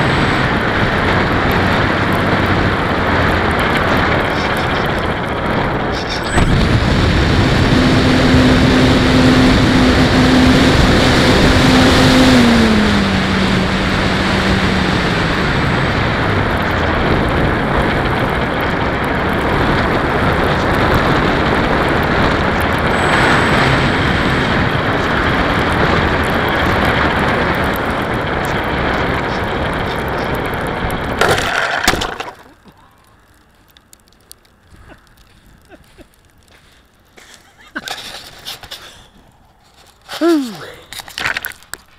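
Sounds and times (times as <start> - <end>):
rushing wind noise: 0.0 - 31.9.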